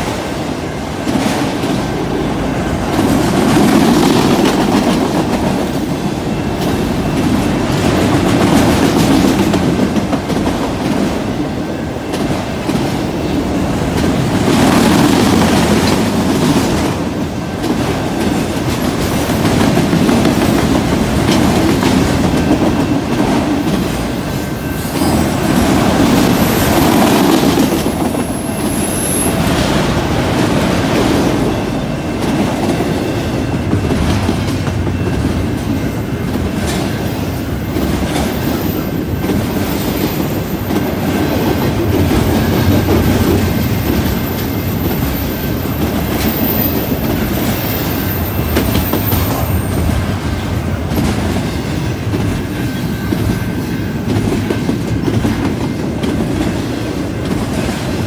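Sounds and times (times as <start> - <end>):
freight train wheels clacking: 0.0 - 58.0.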